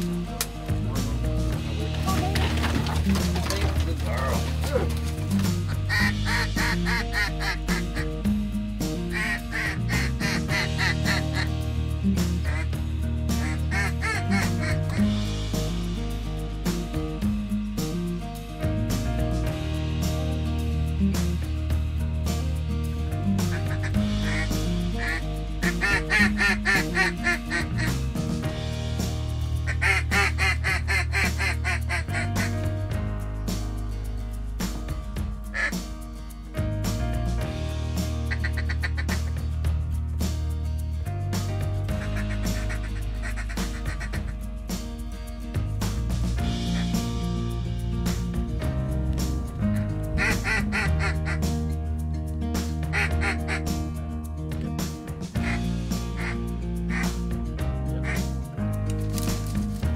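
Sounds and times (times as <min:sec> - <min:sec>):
background music with held notes: 0:00.0 - 0:59.9
duck call quacks: 0:05.9 - 0:08.1, 0:09.1 - 0:11.5, 0:13.4 - 0:14.8, 0:24.2 - 0:27.9, 0:29.7 - 0:32.6, 0:38.3 - 0:39.3, 0:42.1 - 0:44.3, 0:50.2 - 0:51.4, 0:52.9 - 0:53.6, 0:56.2 - 0:57.1.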